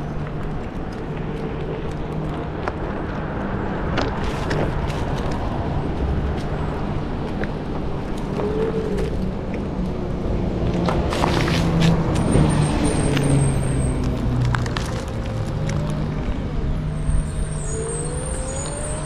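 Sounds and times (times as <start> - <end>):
tyre rolling on pavement: 0.0 - 19.0.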